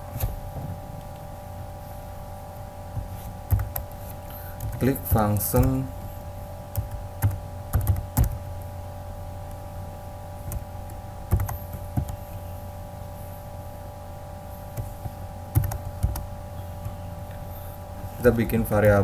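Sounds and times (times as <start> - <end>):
steady hum: 0.0 - 19.0
computer keyboard typing: 3.5 - 5.9, 6.7 - 8.4, 11.3 - 12.4, 15.5 - 16.2.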